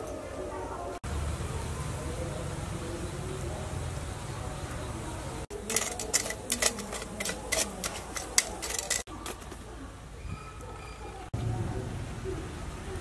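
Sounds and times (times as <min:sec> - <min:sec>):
charcoal clinking and crackling: 0:05.5 - 0:09.6.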